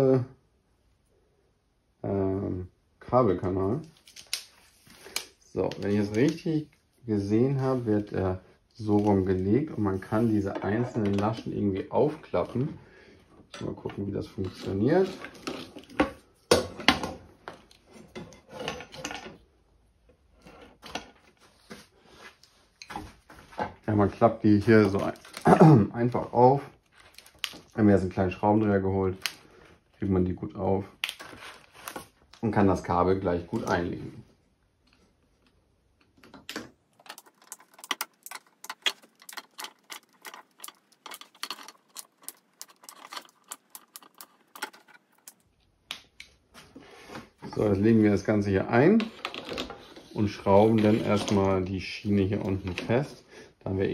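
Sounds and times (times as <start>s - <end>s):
chain clicking and rattling: 37.0s - 45.4s.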